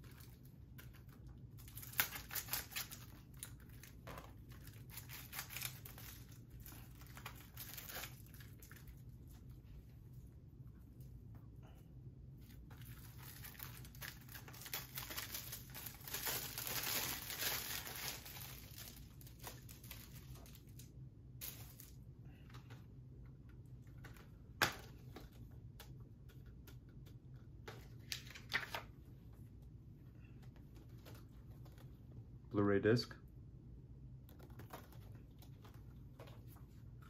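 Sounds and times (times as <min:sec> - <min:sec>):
plastic wrap crinkling and tearing: 0:00.0 - 0:09.1, 0:12.4 - 0:22.0.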